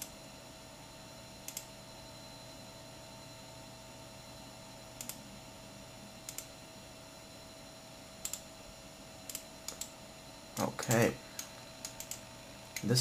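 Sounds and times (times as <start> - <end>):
faint steady hum: 0.0 - 13.0
computer mouse clicking: 1.5 - 1.7, 5.0 - 5.2, 6.3 - 6.5, 8.2 - 8.5, 9.3 - 9.9, 10.6 - 12.2.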